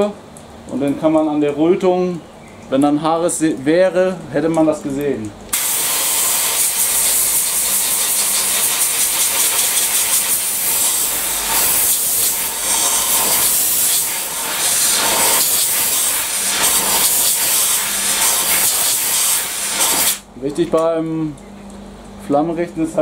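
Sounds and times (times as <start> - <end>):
air blow gun hissing: 5.5 - 20.2.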